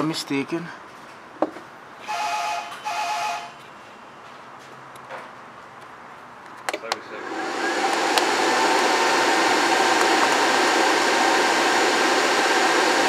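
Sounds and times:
charger cooling fan whoosh: 7.0 - 13.0.

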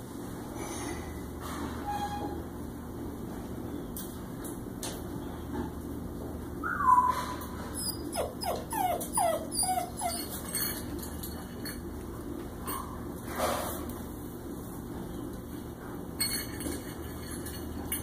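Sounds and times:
puppies whining: 6.6 - 10.9.

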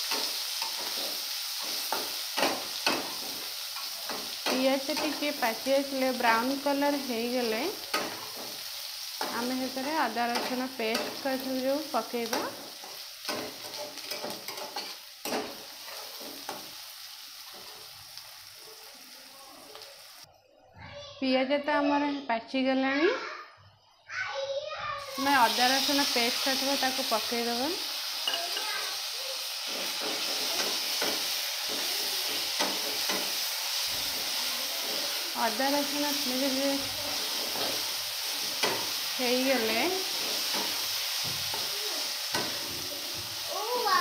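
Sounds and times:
onions sizzling in oil: 0.0 - 20.3, 25.0 - 44.0
metal spatula scraping pan: 12.2 - 16.7, 29.6 - 35.8, 37.0 - 41.7.

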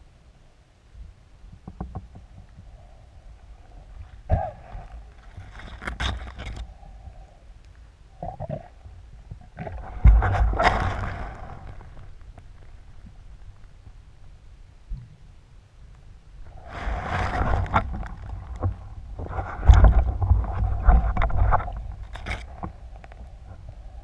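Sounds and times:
underwater knocks and clicks: 1.5 - 2.7, 8.2 - 12.5, 17.2 - 23.6
rushing water noise: 9.7 - 12.2.

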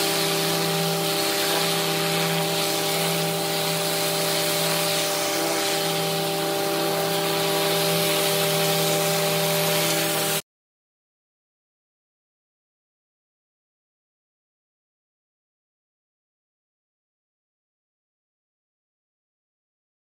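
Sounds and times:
high-pressure water hissing: 0.0 - 10.4
machine drone: 0.0 - 10.4.

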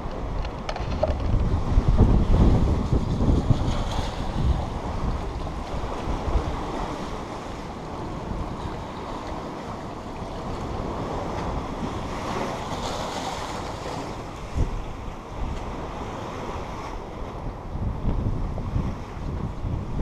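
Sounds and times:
wind buffeting microphone: 0.0 - 20.0
small waves against rocks: 0.1 - 14.8.

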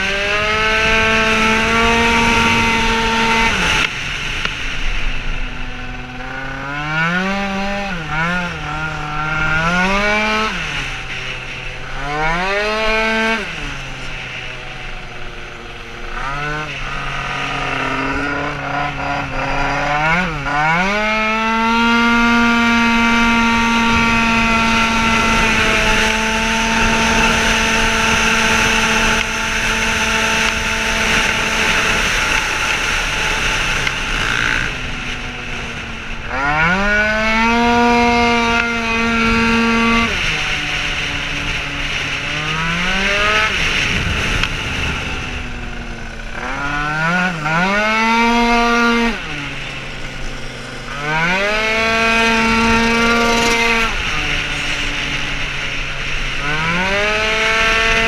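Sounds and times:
scooter engine revving: 0.0 - 58.0.

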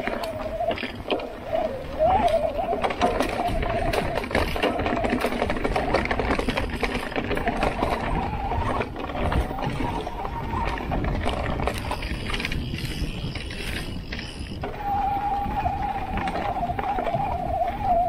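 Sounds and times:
wind on microphone: 0.0 - 18.0
bike rattling knocks: 2.1 - 14.7.

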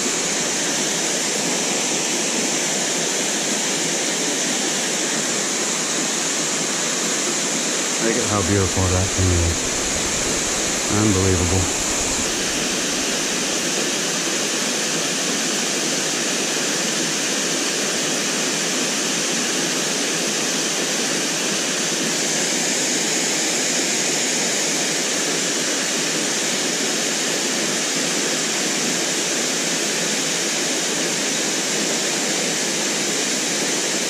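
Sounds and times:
waterfall rushing: 8.1 - 14.1.

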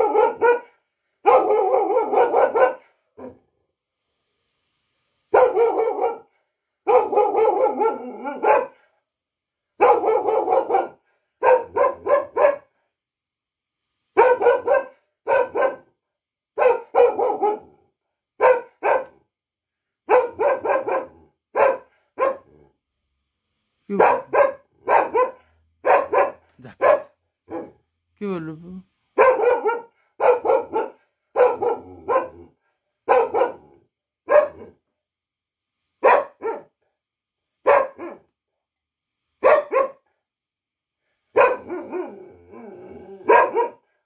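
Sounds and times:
dog barking: 0.0 - 3.4, 5.3 - 8.8, 9.8 - 12.7, 14.2 - 15.9, 16.6 - 17.8, 18.4 - 19.2, 20.1 - 22.6, 23.9 - 27.8, 29.2 - 32.5, 33.1 - 34.8, 36.0 - 36.7, 37.6 - 38.3, 39.4 - 40.0, 41.3 - 42.1, 43.2 - 43.8.

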